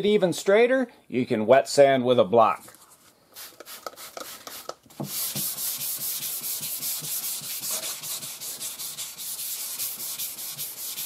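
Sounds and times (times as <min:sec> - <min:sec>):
wet sanding car panel: 0:05.0 - 0:11.0.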